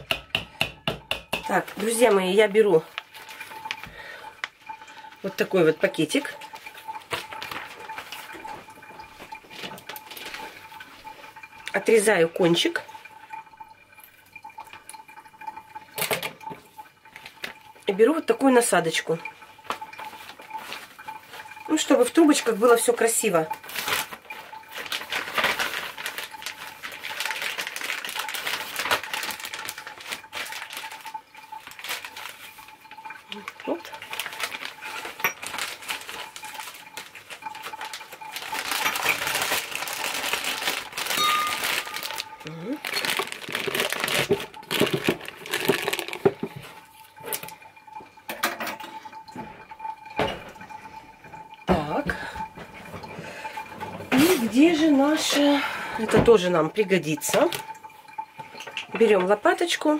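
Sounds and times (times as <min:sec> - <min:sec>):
plastic bag crinkling: 0:01.5 - 0:12.0, 0:19.6 - 0:47.7.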